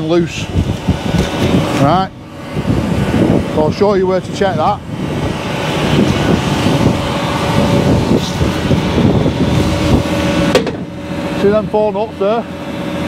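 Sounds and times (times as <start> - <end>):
heavy machinery rumbling: 0.0 - 13.0
wind buffeting microphone: 0.0 - 13.0
sharp knock: 10.5 - 10.8.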